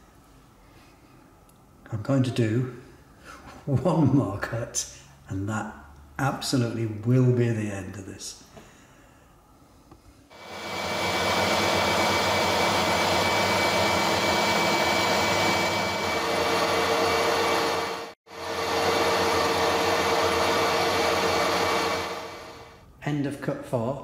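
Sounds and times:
lathe whirring: 10.4s - 22.8s.

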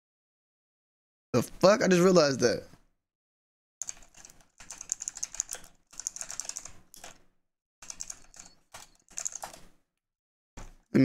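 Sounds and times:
fast typing on keyboard: 3.8s - 9.8s, 10.6s - 11.0s.

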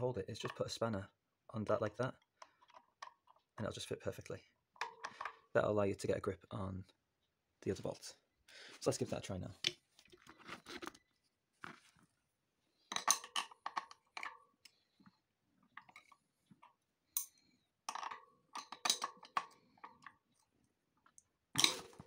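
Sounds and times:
spanners clinking on metal bolts: 17.2s - 20.0s.

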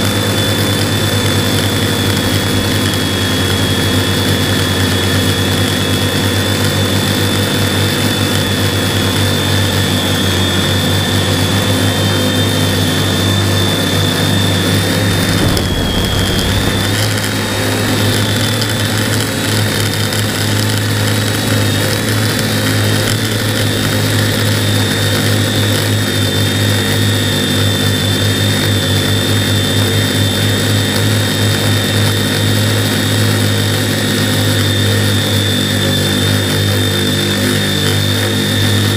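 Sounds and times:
drone motors buzzing with high whine: 0.1s - 28.0s.

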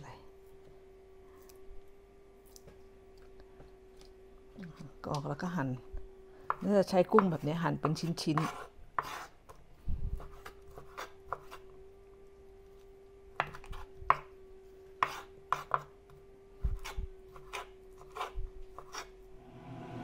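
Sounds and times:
faint hum: 0.0s - 20.0s
knife chopping on wooden board: 6.5s - 9.3s, 10.2s - 11.6s, 13.4s - 14.3s, 15.0s - 15.9s, 16.7s - 19.1s.

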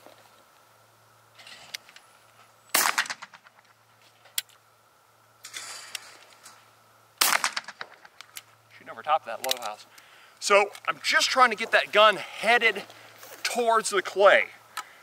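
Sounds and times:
shotgun shot: 2.7s - 3.4s, 7.2s - 8.0s.

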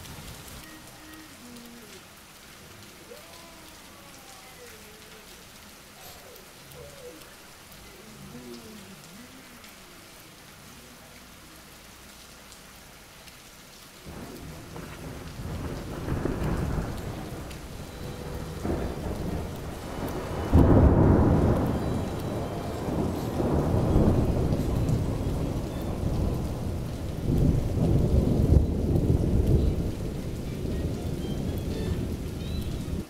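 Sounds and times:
steady rain: 0.0s - 33.0s
thunder rumbling: 14.0s - 33.0s
loud thunder clap: 14.1s - 31.0s.

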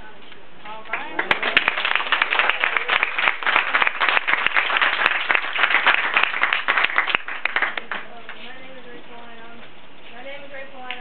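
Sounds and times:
audience applauding: 0.9s - 8.1s.

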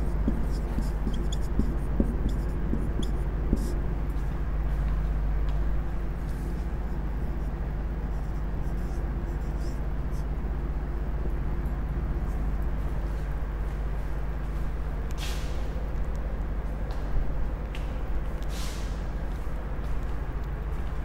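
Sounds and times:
marker writing on whiteboard: 0.0s - 3.8s, 6.2s - 10.3s
low background hum: 0.0s - 21.0s.

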